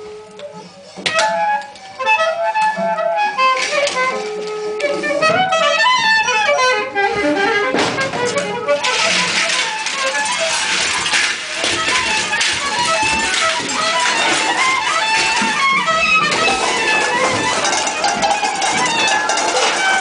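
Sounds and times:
metal percussion clanks and scrapes: 0:07.7 - 0:20.0.

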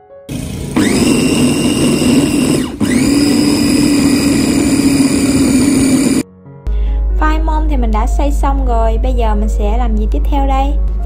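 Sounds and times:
food chopper motor grinding: 0:00.3 - 0:06.2.

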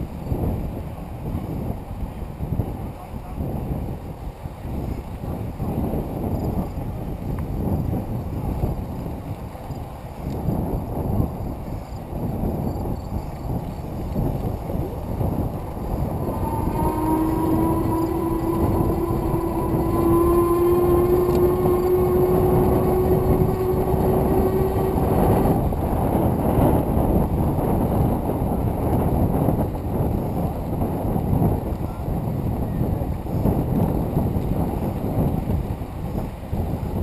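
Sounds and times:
wind on microphone: 0:00.0 - 0:37.0
steady rising tone: 0:14.8 - 0:26.9.

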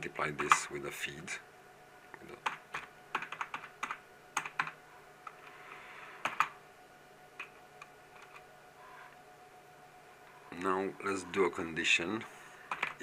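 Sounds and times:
typing on computer keyboard: 0:02.4 - 0:04.8, 0:06.2 - 0:06.5, 0:12.7 - 0:13.0.

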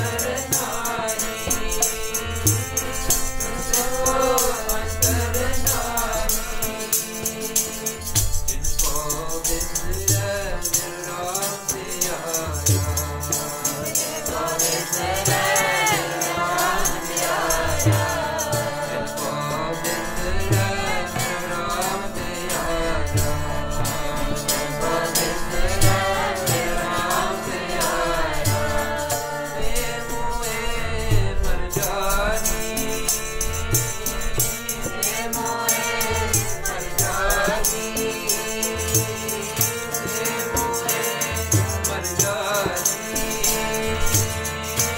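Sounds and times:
jingling percussion rattling: 0:00.0 - 0:19.5
harmonium chords: 0:00.0 - 0:44.9
voices singing a hymn: 0:00.0 - 0:44.9.

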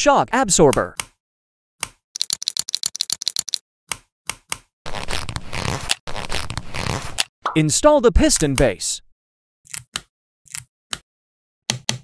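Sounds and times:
plastic parts clicking together: 0:01.8 - 0:04.6
plastic rubbing and scraping: 0:04.9 - 0:07.3.

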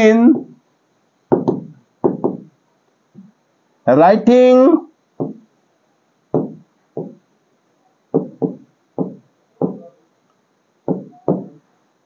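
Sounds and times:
stylus tapping on touchscreen: 0:01.3 - 0:02.5, 0:05.2 - 0:05.5, 0:06.3 - 0:07.2, 0:08.2 - 0:09.9, 0:10.9 - 0:11.6.

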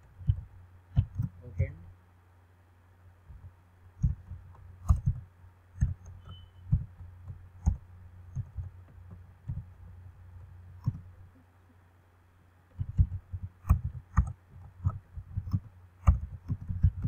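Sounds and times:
low steady hum: 0:00.0 - 0:17.0
computer keyboard clicks: 0:12.8 - 0:17.0.

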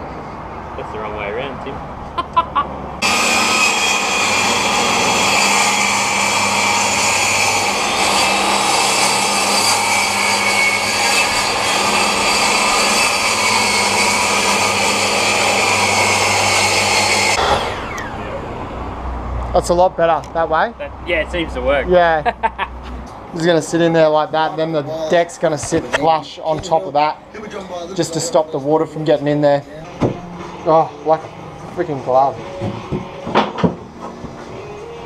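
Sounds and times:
table saw cutting wood: 0:03.0 - 0:18.6.

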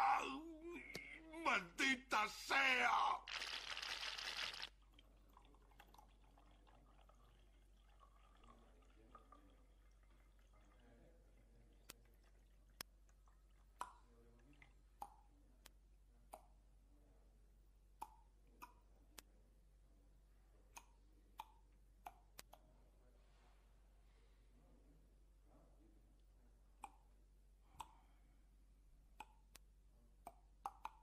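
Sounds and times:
liquid dripping: 0:03.3 - 0:15.3.

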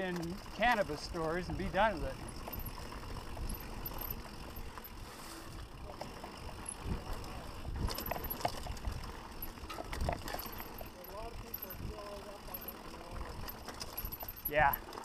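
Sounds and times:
bike rattling over bumps: 0:00.0 - 0:15.0
bike tyres rolling over dirt: 0:00.0 - 0:15.0
wind on microphone: 0:06.8 - 0:09.1.

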